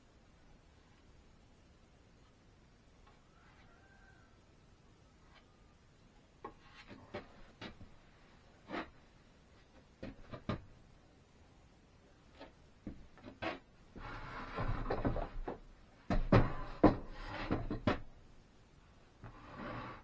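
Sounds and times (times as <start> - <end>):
hand tool scraping wood: 8.6 - 9.0, 13.2 - 18.0, 19.2 - 20.0.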